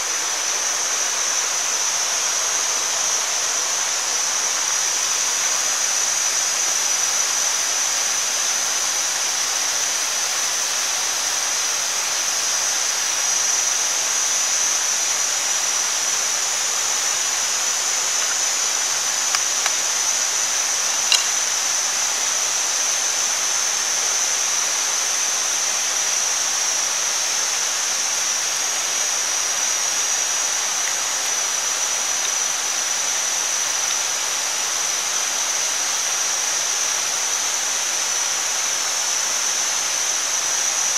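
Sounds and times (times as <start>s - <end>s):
food sizzling on hot stone: 16.1s - 23.1s
small clicks: 19.2s - 19.9s, 21.0s - 21.5s.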